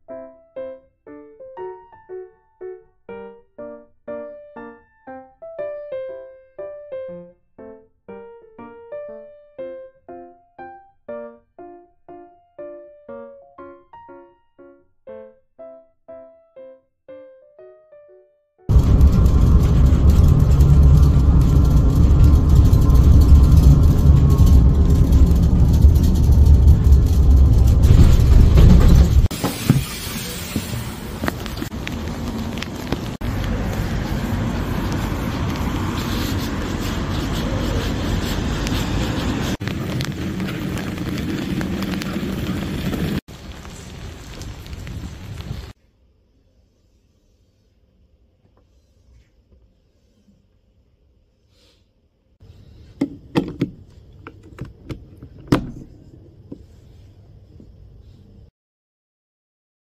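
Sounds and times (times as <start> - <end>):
wind buffeting microphone: 18.7 - 29.3, 38.3 - 45.7
street traffic: 18.7 - 45.8.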